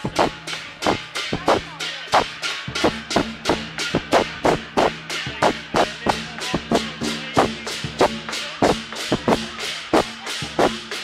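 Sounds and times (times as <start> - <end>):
cymbals clashing: 0.0 - 11.0
drum beating: 0.0 - 11.0.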